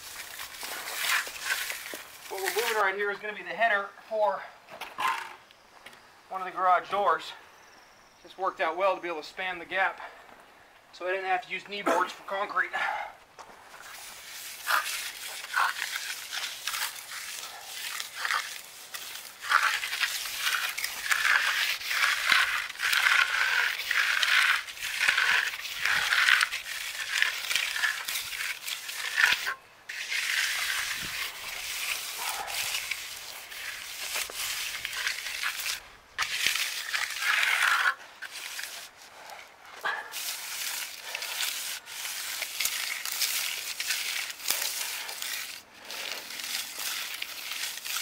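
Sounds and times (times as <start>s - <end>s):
trowel scraping wet concrete: 0.0s - 3.2s, 13.7s - 48.0s.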